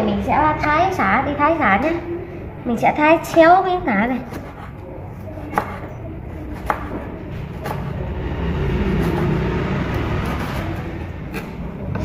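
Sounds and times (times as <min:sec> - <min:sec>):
low rumbling noise: 0:07.1 - 0:12.0.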